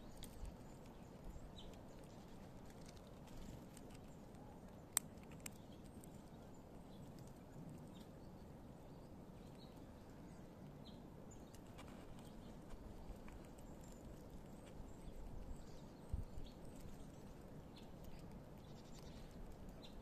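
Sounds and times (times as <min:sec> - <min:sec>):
low background hum: 0:00.0 - 0:20.0
squirrel gnawing nuts: 0:00.0 - 0:20.0.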